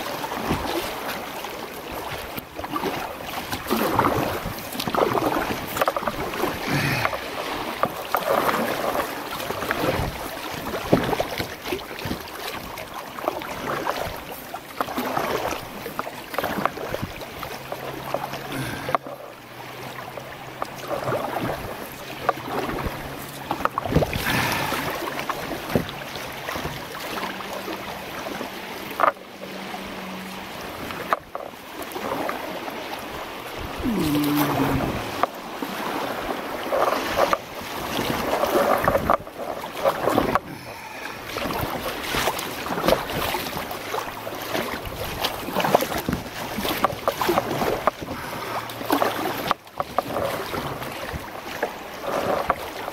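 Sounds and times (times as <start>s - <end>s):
creek water flowing: 0.0s - 52.9s
paddle strokes splashing: 0.0s - 52.9s
wind buffeting microphone: 33.6s - 35.3s.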